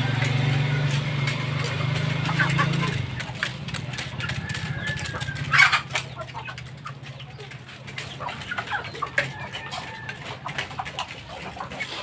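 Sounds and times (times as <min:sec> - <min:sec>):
chickens clucking: 0:00.0 - 0:12.0
chicken squawk: 0:04.2 - 0:06.6.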